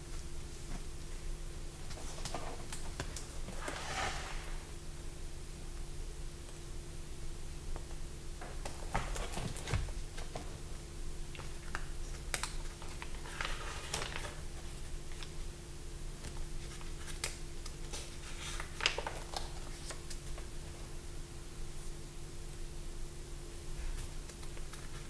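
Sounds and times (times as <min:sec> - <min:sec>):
paper pages turning and crinkling: 0:01.8 - 0:04.6, 0:11.4 - 0:15.4, 0:16.2 - 0:20.8.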